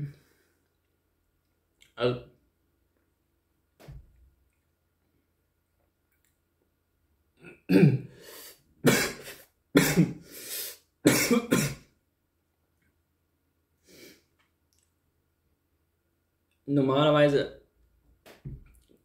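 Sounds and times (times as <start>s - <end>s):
man coughing: 7.4s - 8.1s, 8.8s - 10.2s, 11.1s - 11.8s.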